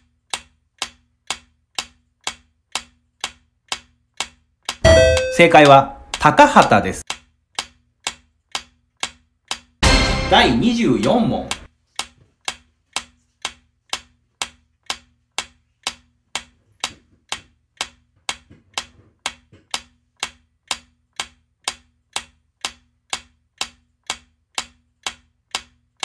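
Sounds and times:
countdown timer ticking: 0:04.7 - 0:07.0, 0:09.8 - 0:11.7.

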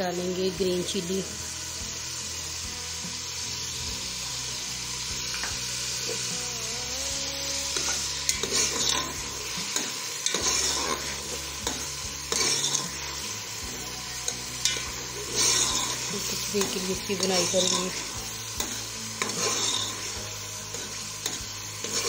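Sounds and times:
masala sizzling in oil: 0:00.0 - 0:22.0
spoon scraping a metal pot: 0:07.8 - 0:13.2, 0:14.6 - 0:22.0.

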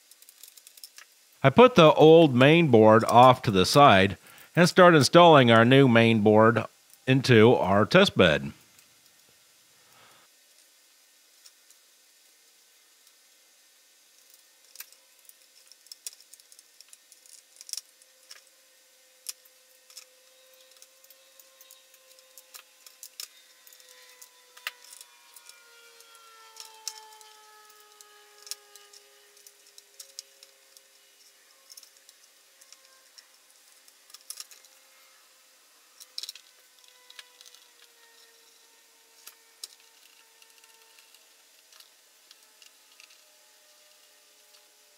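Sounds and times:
faint background tone: 0:01.4 - 0:08.6.

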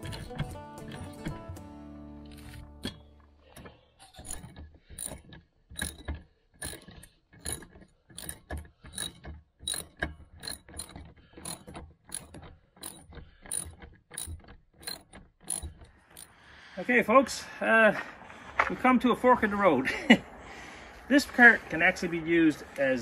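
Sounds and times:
socket ratchet clicking: 0:04.4 - 0:16.3.

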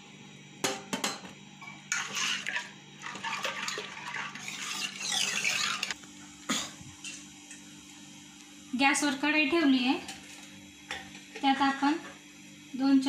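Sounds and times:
wet scraping and sloshing: 0:01.9 - 0:06.0.

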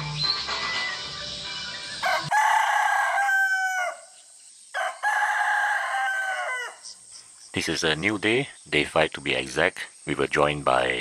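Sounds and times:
rooster crowing: 0:02.0 - 0:04.2, 0:04.8 - 0:06.9.

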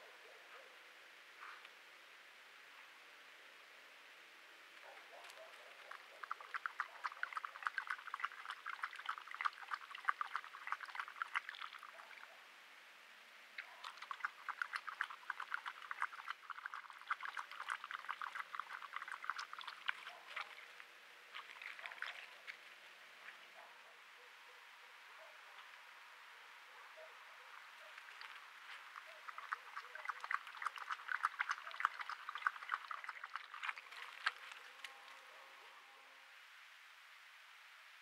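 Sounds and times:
animal lapping water: 0:05.2 - 0:12.3, 0:13.6 - 0:22.6, 0:27.4 - 0:34.9.

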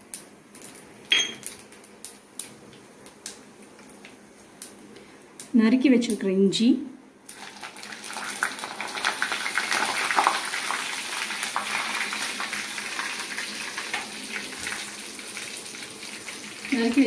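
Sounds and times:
small crackles: 0:00.1 - 0:06.2, 0:07.2 - 0:17.0
ginger sizzling in hot oil: 0:07.2 - 0:17.0.

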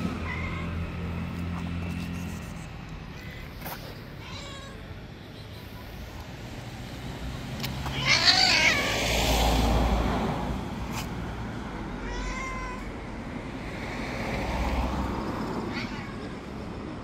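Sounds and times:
cat meowing: 0:00.1 - 0:01.2, 0:03.2 - 0:05.0, 0:07.8 - 0:09.2, 0:11.9 - 0:13.0, 0:15.6 - 0:16.6.

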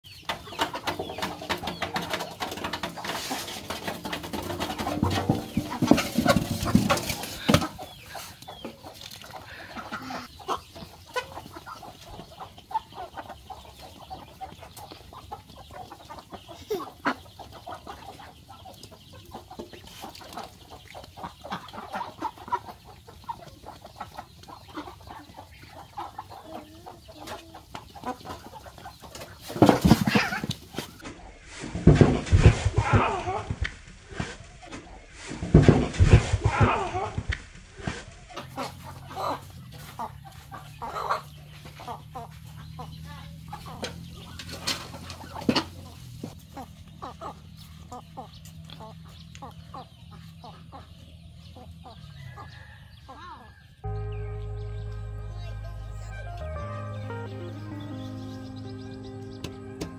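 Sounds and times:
ducks calling: 0:00.0 - 0:29.4, 0:38.3 - 0:51.0, 0:53.8 - 0:59.9.

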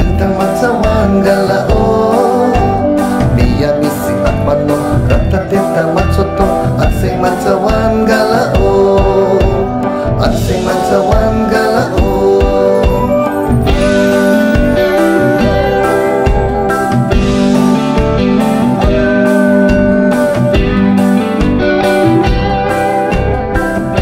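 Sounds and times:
man singing into microphone: 0:00.0 - 0:16.9, 0:19.4 - 0:20.8
instrumental accompaniment with beat: 0:00.0 - 0:24.0.

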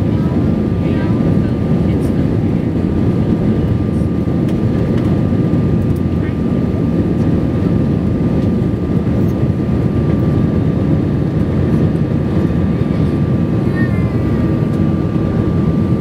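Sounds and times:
aircraft cabin engine rumble: 0:00.0 - 0:16.0.

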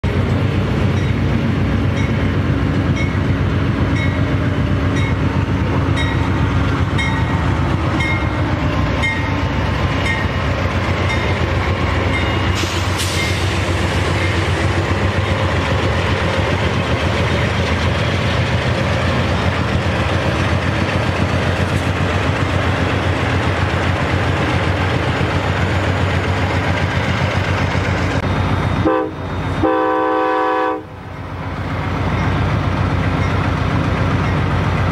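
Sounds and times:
model train rumbling along track: 0:00.0 - 0:34.9.

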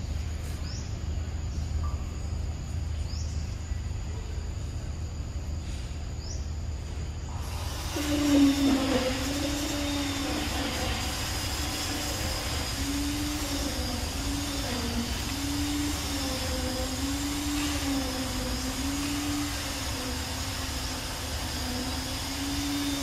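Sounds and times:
motor droning: 0:05.7 - 0:23.0.

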